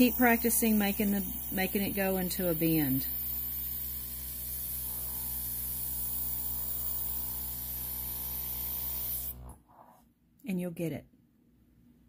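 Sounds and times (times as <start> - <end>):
airbrush air hiss: 0.0 - 9.4
compressor motor hum: 0.0 - 9.6.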